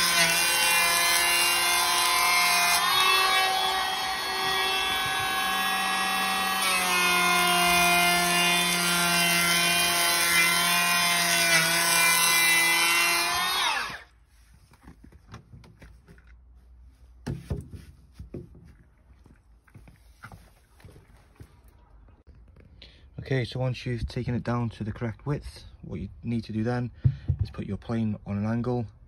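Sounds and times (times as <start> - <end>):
electric planer whining: 0.0 - 14.0.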